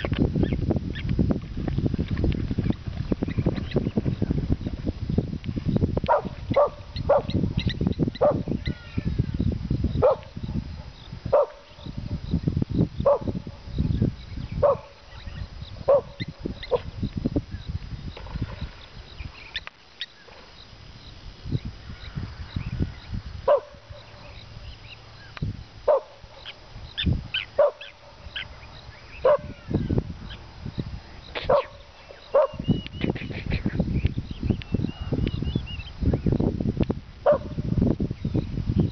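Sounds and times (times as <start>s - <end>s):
dog barking: 6.1s - 7.4s, 10.0s - 11.7s, 13.0s - 13.4s, 14.6s - 15.0s, 15.9s - 16.9s, 23.5s - 23.8s, 25.9s - 26.2s, 27.6s - 27.9s, 29.2s - 29.6s, 31.5s - 32.6s, 37.3s - 37.6s.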